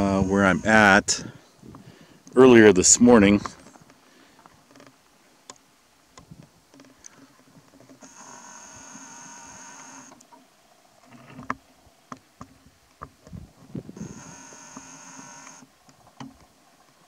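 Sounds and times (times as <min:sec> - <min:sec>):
zoom lens motor whine: 0:00.0 - 0:01.0, 0:08.0 - 0:10.3, 0:13.9 - 0:15.7
faint clicks: 0:03.4 - 0:10.4.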